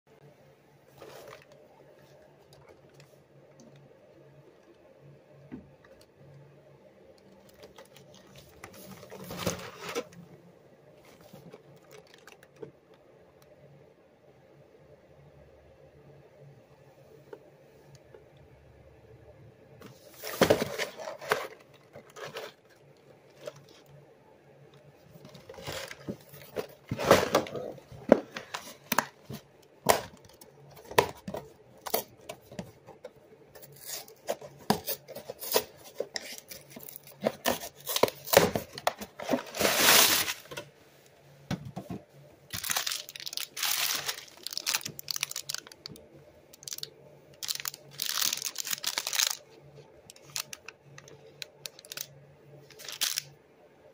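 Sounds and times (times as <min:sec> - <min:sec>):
plastic pouch crinkling: 0:11.4 - 0:12.6, 0:42.5 - 0:46.0, 0:46.6 - 0:49.5, 0:50.1 - 0:52.1, 0:52.7 - 0:53.3.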